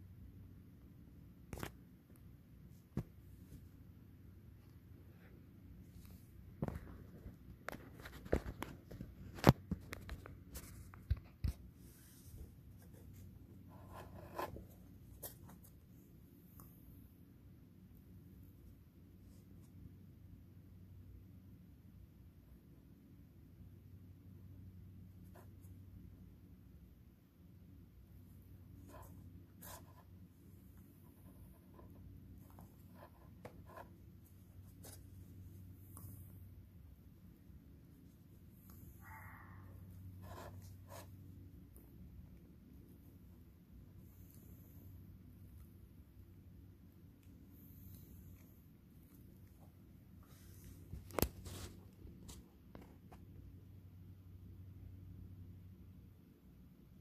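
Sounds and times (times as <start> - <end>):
low room hum: 0.0 - 57.0
faint scratchy noises: 28.1 - 53.4.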